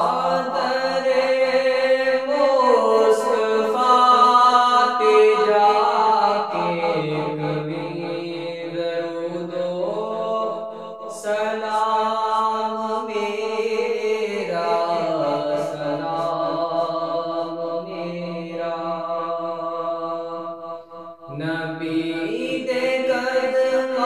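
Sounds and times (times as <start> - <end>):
man chanting: 0.0 - 20.5, 21.2 - 24.0.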